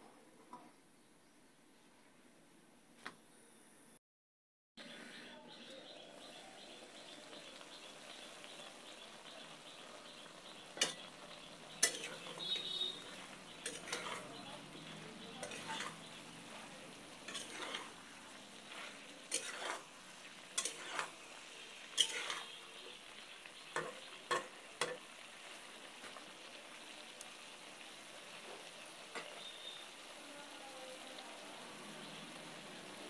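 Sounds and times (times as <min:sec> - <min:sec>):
food sizzling: 0:04.8 - 0:33.0
spatula scraping metal pot: 0:11.8 - 0:14.4, 0:17.2 - 0:18.0, 0:18.7 - 0:21.2, 0:21.9 - 0:22.6.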